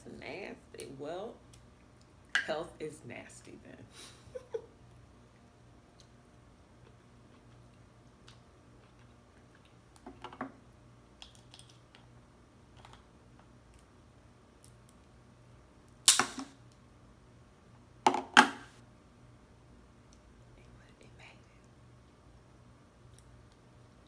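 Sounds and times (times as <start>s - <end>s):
crab shells cracking: 11.2s - 12.1s.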